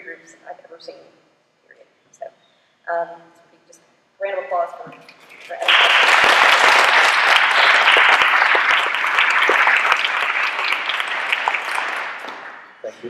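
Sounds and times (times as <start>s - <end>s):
audience applauding: 5.4s - 12.8s.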